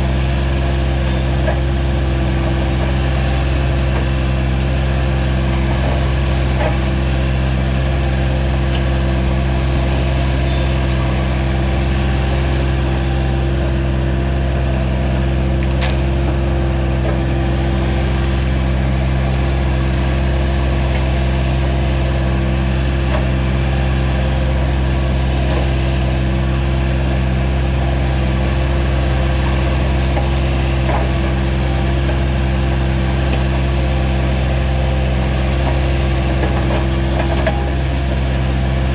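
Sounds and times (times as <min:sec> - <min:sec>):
skid steer engine running: 0:00.0 - 0:38.9
wood and roots cracking: 0:15.6 - 0:16.1.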